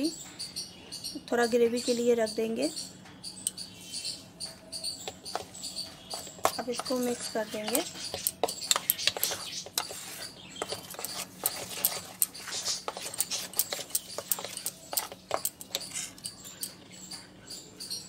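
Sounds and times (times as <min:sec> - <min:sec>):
spoon scraping metal bowl: 0:05.1 - 0:17.0.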